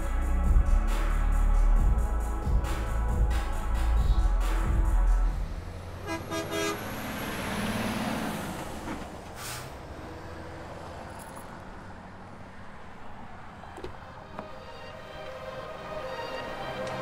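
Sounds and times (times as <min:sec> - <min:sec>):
vehicle passing: 0:05.2 - 0:17.0
car horn toots: 0:06.0 - 0:06.9.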